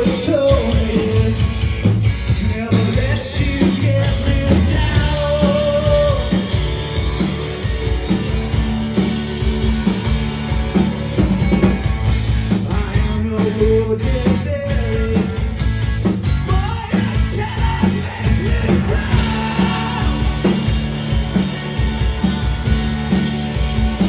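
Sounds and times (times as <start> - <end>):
person singing lead vocal: 0.0 - 1.6, 2.3 - 6.8, 12.5 - 15.6, 16.4 - 21.0
bass guitar: 0.0 - 24.0
drum kit: 0.0 - 24.0
electric guitars: 0.0 - 24.0.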